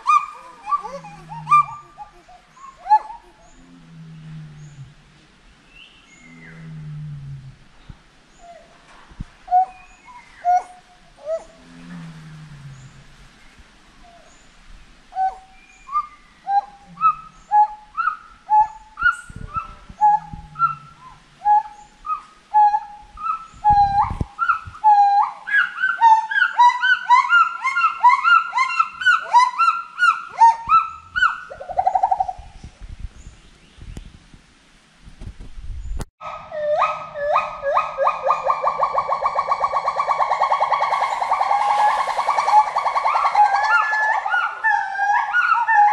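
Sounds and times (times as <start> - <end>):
gibbon whooping song: 36.6 - 45.9.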